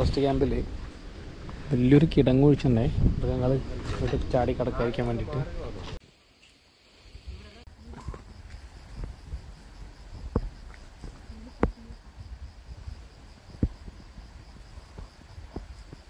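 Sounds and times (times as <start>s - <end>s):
low wind rumble on microphone: 0.0s - 6.0s, 7.2s - 16.0s
insect chirring: 6.0s - 16.0s.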